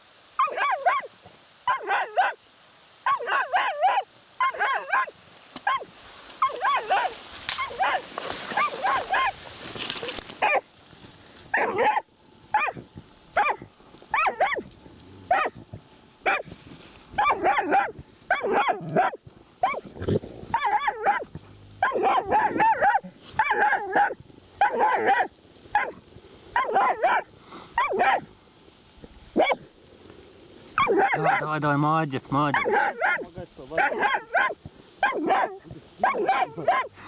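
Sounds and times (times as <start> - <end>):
dog barking: 0.4 - 2.4, 3.0 - 9.4, 10.4 - 10.7, 11.5 - 12.8, 13.4 - 14.7, 15.3 - 15.6, 16.2 - 16.5, 17.2 - 19.9, 20.5 - 26.0, 26.6 - 28.3, 29.4 - 29.7, 30.8 - 31.5, 32.5 - 37.0.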